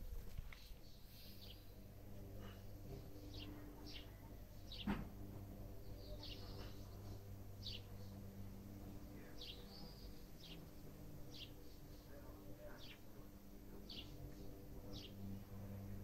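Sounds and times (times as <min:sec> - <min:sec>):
steady low hum: 0:00.0 - 0:16.0
small bird chirping: 0:02.4 - 0:05.0, 0:05.8 - 0:08.2, 0:09.2 - 0:13.1.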